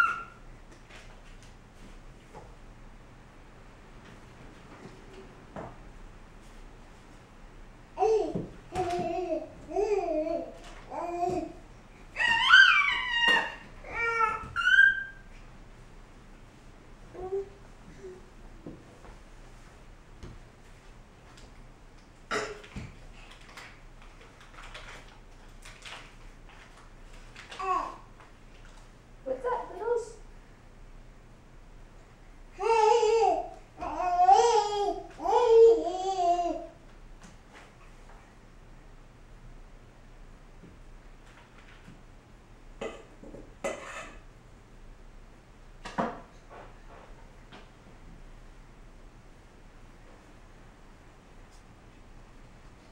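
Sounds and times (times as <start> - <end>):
baby voice squeak: 0.0 - 0.4, 12.2 - 15.3.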